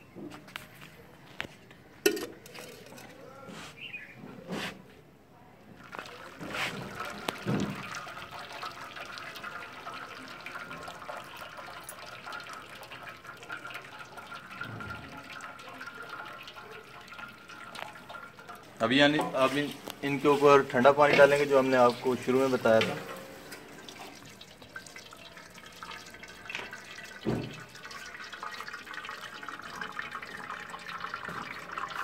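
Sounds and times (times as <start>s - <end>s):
water trickling through strainer: 2.0s - 3.3s, 5.8s - 32.0s
cookware knocking: 2.1s - 2.8s.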